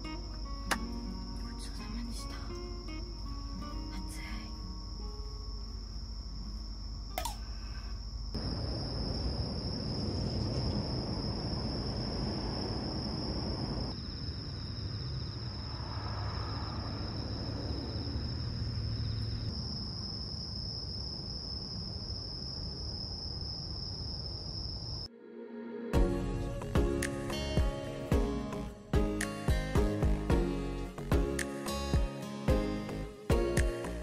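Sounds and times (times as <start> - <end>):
crickets trilling: 0.0 - 25.1
lower insect trill: 0.0 - 25.1.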